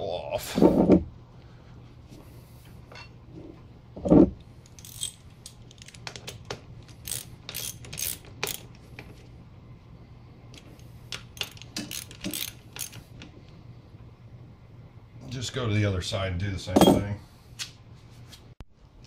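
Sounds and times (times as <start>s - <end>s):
wrench and bolts clinking: 4.7s - 8.7s, 11.1s - 13.0s.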